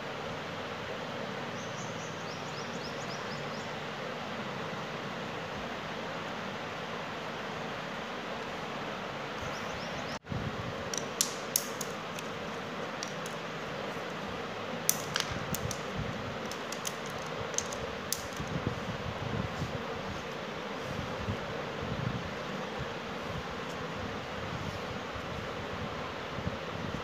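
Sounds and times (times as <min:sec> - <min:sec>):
steady fan hiss: 0:00.0 - 0:27.0
plastic strips clicking on tile: 0:10.9 - 0:13.4, 0:14.9 - 0:15.8, 0:16.4 - 0:18.5.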